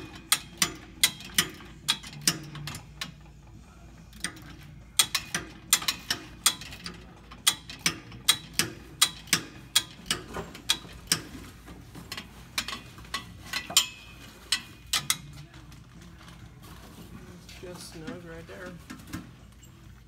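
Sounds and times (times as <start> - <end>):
ratchet wrench clicking: 0.0 - 3.3, 4.1 - 11.4, 12.1 - 15.4.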